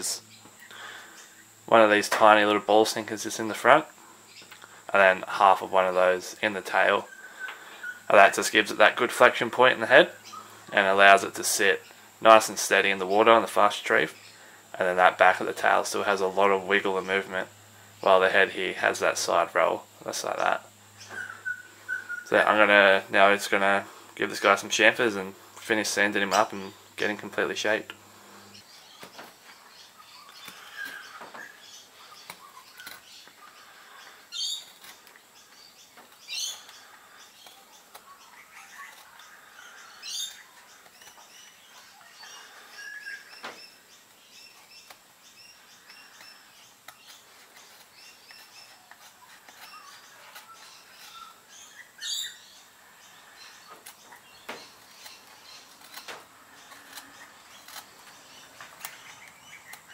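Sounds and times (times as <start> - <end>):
birds chirping: 0.0 - 59.9
knife scraping wood: 28.5 - 59.9.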